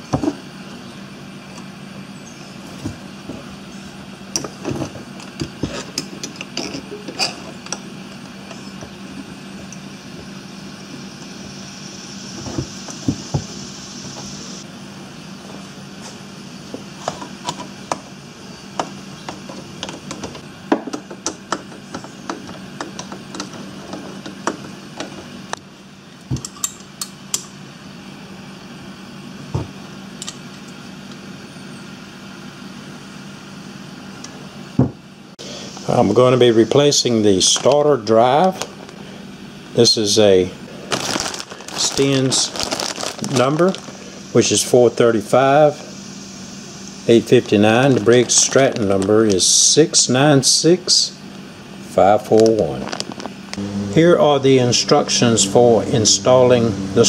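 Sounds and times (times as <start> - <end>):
steady low hum: 0.0 - 57.0
metal tools clicking and tapping: 26.4 - 27.5.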